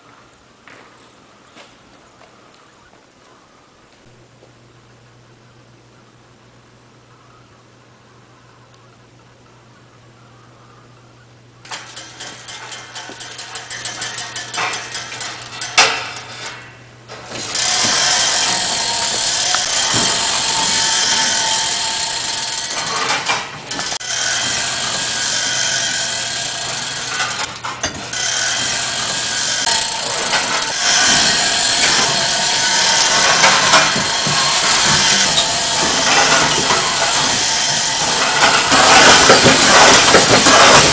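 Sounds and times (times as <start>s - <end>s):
irregular clattering and knocks: 11.6s - 40.9s
kinetic sculpture rattling: 11.7s - 16.3s, 17.3s - 40.9s.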